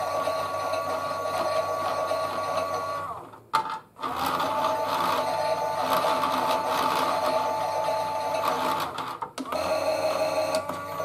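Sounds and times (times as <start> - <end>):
small electric motor whining: 0.0 - 3.3, 4.0 - 11.0.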